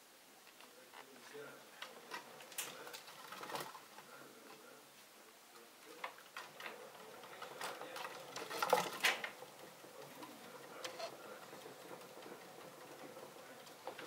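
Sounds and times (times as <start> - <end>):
degus clicking in wire cage: 1.8 - 3.9, 6.0 - 14.0.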